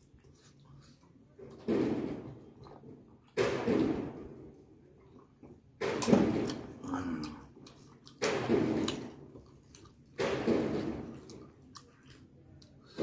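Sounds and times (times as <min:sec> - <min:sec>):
man eating mouth sounds: 0:05.0 - 0:13.0.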